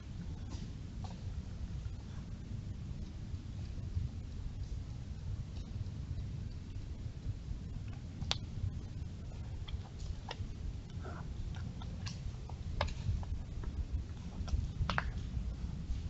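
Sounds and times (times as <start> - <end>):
low rumble: 0.0 - 16.0
hooves snapping twigs: 7.8 - 16.0.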